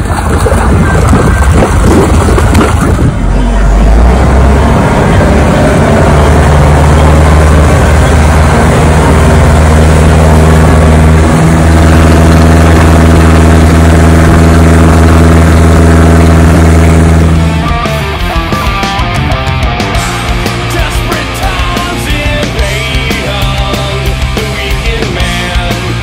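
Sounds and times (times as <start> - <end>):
rushing water: 0.0 - 17.6
boat engine running hard: 0.0 - 26.0.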